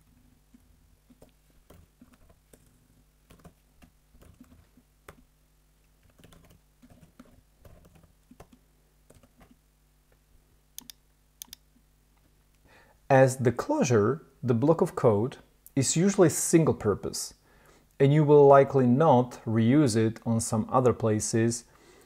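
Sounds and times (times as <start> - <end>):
computer keyboard typing: 1.1 - 5.3, 6.0 - 9.6.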